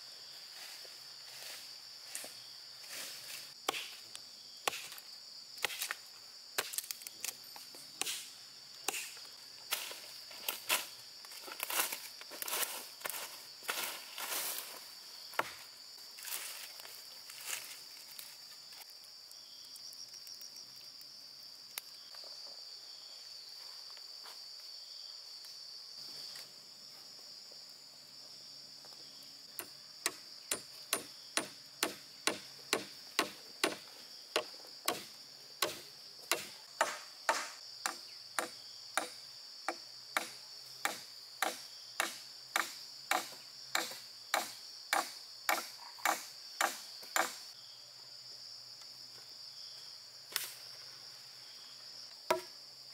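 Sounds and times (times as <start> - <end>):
sharp tool strikes: 3.7 - 4.0, 8.0 - 8.3, 8.9 - 9.2, 29.6 - 33.8, 34.4 - 39.2, 40.2 - 47.4.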